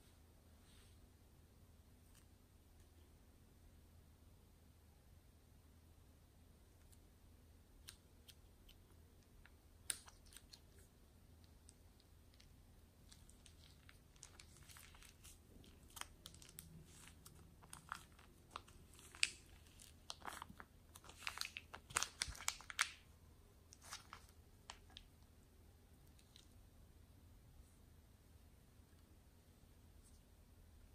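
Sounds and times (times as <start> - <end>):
faint crackles and clicks: 7.8 - 23.1, 23.7 - 25.3
plastic bag crinkling: 13.0 - 23.1, 23.7 - 25.1.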